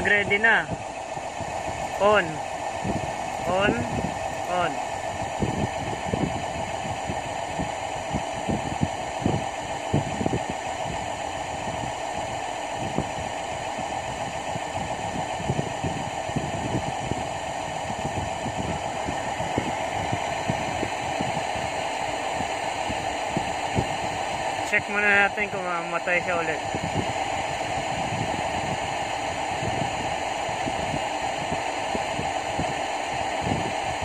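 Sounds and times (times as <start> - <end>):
machinery hum: 0.0 - 34.0.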